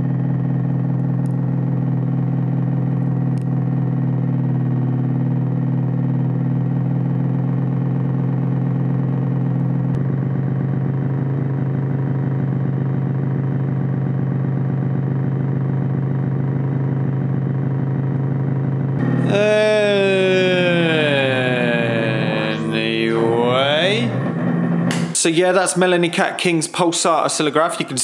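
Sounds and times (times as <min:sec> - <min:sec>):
buzzy synthesizer drone: 0:19.0 - 0:25.2.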